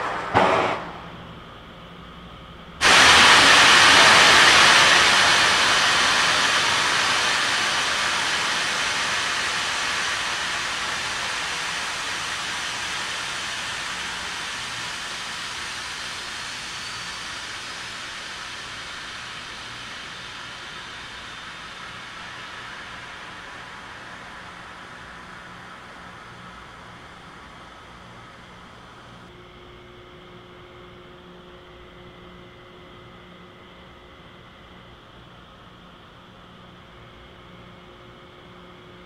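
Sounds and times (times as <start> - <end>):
loud hiss of gas venting: 2.8 - 29.3.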